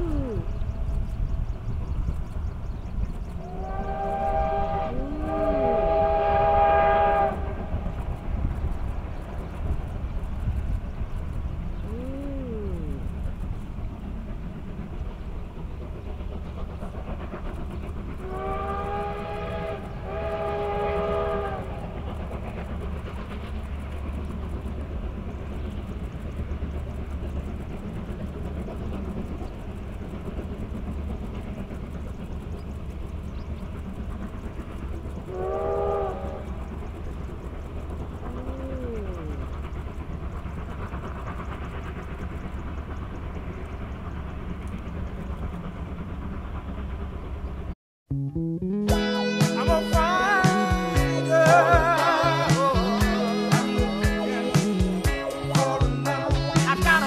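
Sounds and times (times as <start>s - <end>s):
train rumbling: 0.0s - 57.0s
steam locomotive whistle: 3.3s - 8.3s, 18.1s - 22.6s, 35.2s - 36.8s, 48.8s - 57.0s.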